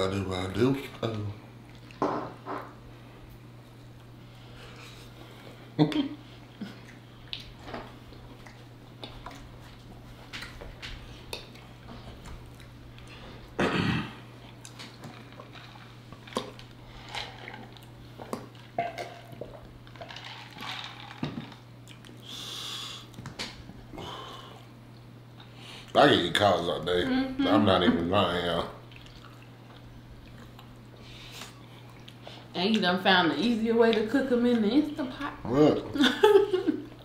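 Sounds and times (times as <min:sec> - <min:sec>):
steady low hum: 0:00.0 - 0:37.0
chewing and mouth sounds: 0:01.6 - 0:02.0, 0:06.4 - 0:13.6, 0:14.3 - 0:20.7, 0:21.4 - 0:22.3, 0:28.8 - 0:32.4.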